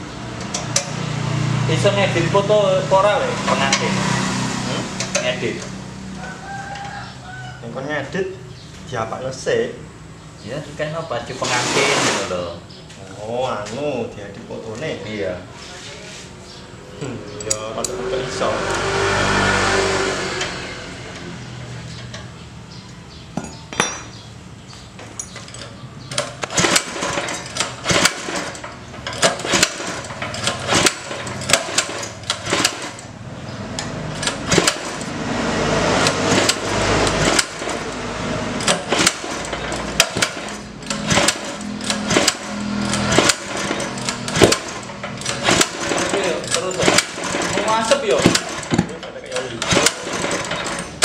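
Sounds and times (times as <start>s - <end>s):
recoil starter pulls: 4.9s - 5.8s, 11.3s - 12.4s, 25.2s - 51.0s
clicks and rattles: 38.6s - 51.0s.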